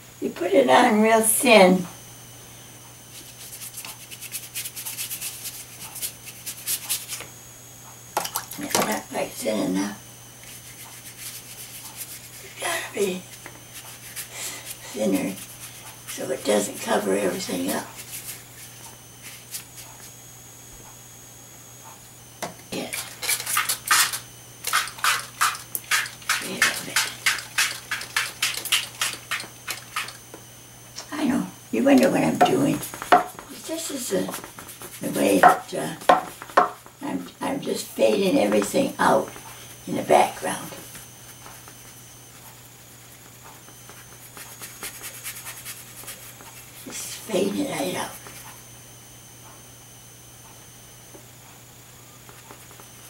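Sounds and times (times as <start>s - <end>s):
paintbrush scrubbing: 3.1s - 7.2s, 10.4s - 12.6s, 13.2s - 20.1s, 22.9s - 30.2s, 32.7s - 35.4s, 43.9s - 46.8s.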